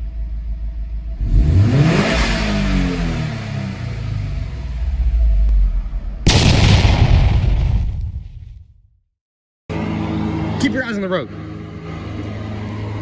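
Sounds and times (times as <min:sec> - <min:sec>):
car engine idling and revving: 0:00.0 - 0:06.3, 0:09.7 - 0:13.0.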